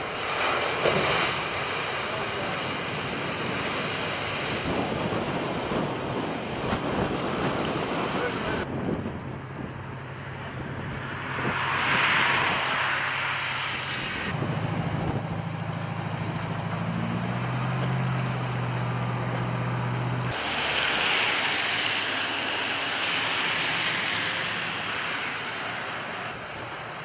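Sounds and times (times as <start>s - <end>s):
water rushing and splashing: 0.0s - 8.9s, 9.6s - 27.0s
low engine hum: 0.0s - 27.0s.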